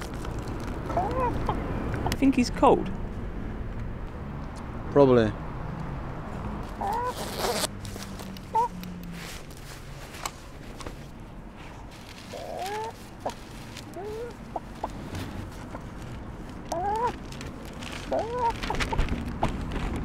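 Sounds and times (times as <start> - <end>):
chicken clucking: 0.9 - 2.2, 6.8 - 7.1, 12.3 - 13.4, 14.0 - 15.0, 16.7 - 17.2
fabric rustling: 9.1 - 20.0.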